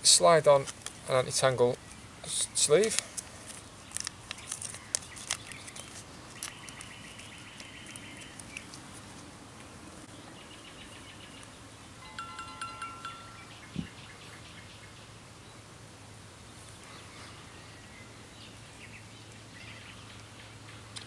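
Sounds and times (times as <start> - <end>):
small birds singing: 1.1 - 15.7, 16.4 - 21.0
plastic blister packet crackling: 2.8 - 9.3.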